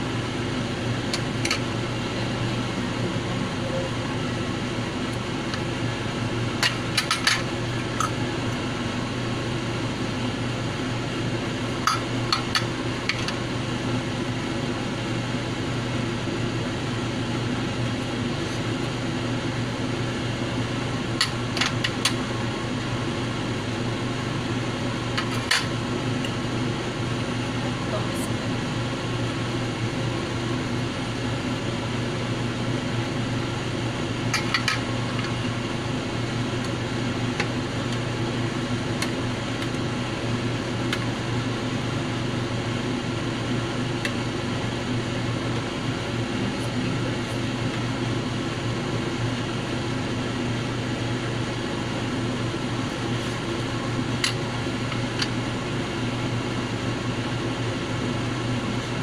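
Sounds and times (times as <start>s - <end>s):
mechanical hum: 0.0s - 59.0s.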